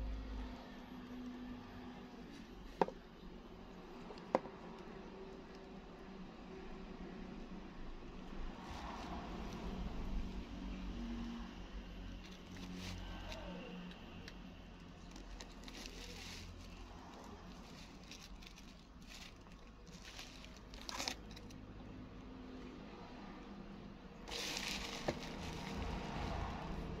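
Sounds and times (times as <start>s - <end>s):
bubble wrap crinkling: 12.2s - 13.5s, 14.2s - 21.6s, 24.3s - 27.0s.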